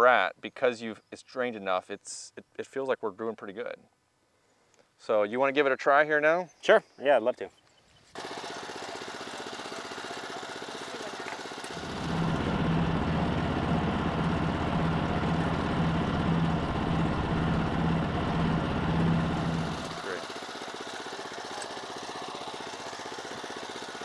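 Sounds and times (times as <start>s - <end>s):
tractor engine running: 8.2s - 24.0s.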